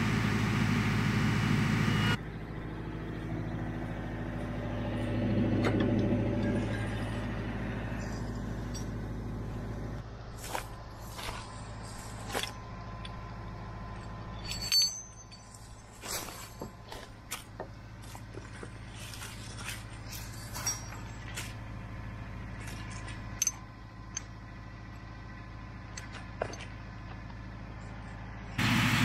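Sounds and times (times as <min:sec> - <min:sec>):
tractor engine idling: 0:00.0 - 0:29.0
footsteps in dry leaves: 0:10.2 - 0:12.8, 0:15.5 - 0:23.3.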